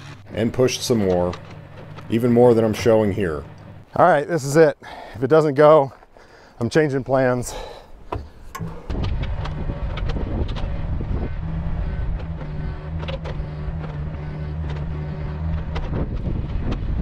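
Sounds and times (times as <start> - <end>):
excavator diesel engine under load: 0.0 - 4.1, 8.2 - 17.0
high engine tone: 0.0 - 4.3, 8.5 - 17.0
sharp clicks: 11.9 - 16.8.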